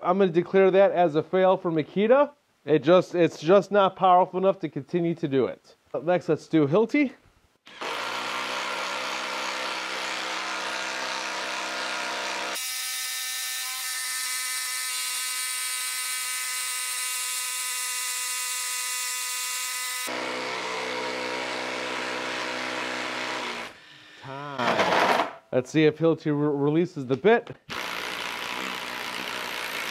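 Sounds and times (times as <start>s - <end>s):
impact driver boring into wood: 7.6s - 23.8s, 24.6s - 25.4s, 27.7s - 29.9s.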